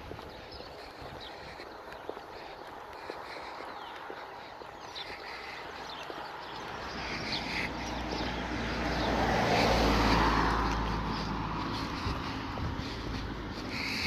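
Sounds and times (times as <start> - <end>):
car driving past: 6.5 - 13.9.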